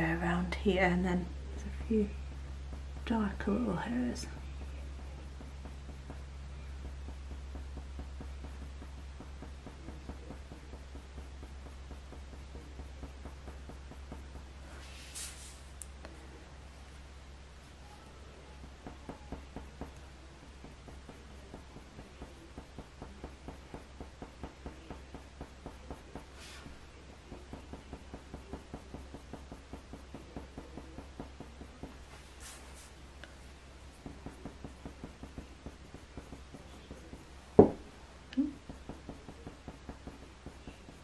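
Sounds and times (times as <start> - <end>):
sharp knock: 37.6 - 37.8.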